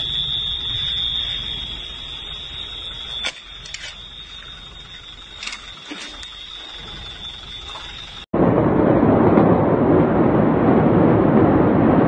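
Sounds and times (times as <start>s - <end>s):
high-pitched alarm tone: 0.0s - 8.3s
low rumbling noise: 0.0s - 12.0s.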